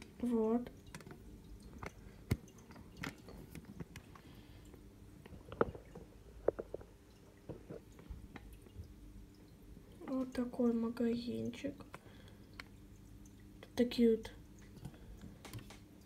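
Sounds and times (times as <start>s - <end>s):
small clicks and taps: 0.8s - 9.0s, 11.8s - 12.8s, 14.6s - 15.9s.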